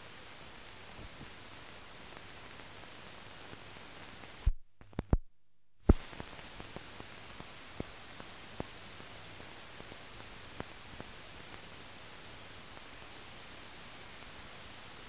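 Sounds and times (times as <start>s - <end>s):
film soundtrack hiss and crackle: 0.0s - 15.0s
loud pops: 5.9s - 6.3s.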